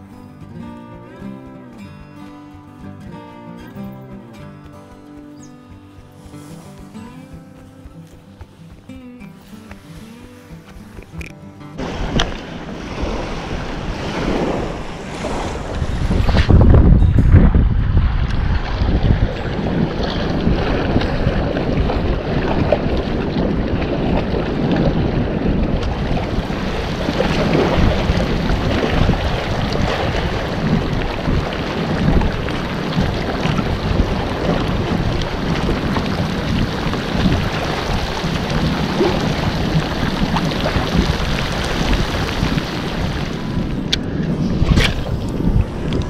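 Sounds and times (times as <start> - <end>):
wind buffeting microphone: 5.3 - 46.0
sea water sloshing: 9.8 - 16.6, 18.0 - 46.0
heavy rain on sea: 18.5 - 43.9.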